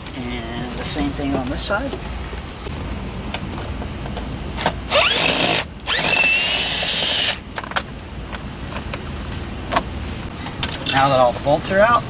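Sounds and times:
cordless drill whining: 4.9 - 7.4.

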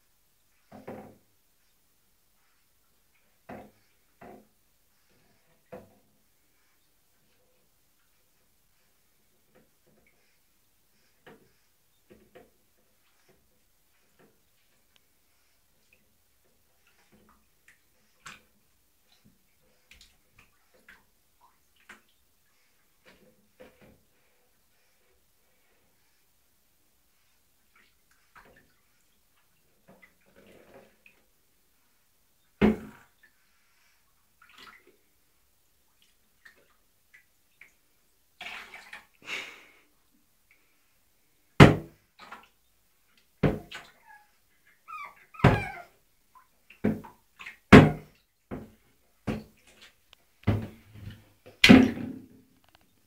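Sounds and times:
water splashing in a bath: 11.1 - 24.5, 27.4 - 31.6, 32.4 - 33.4, 34.0 - 40.7, 41.5 - 53.0.

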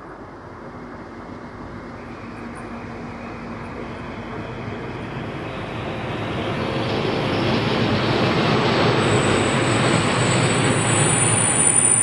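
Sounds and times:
wheel squeal on rails: 8.8 - 12.0.

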